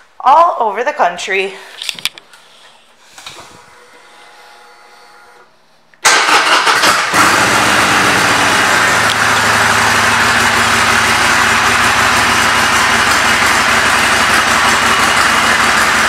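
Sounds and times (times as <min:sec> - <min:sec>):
motorcycle engine starting and idling: 0:06.0 - 0:16.0.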